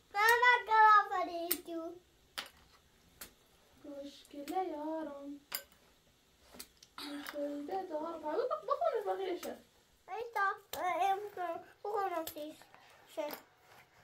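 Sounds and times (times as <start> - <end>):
child singing: 0.1 - 2.0, 10.1 - 12.6.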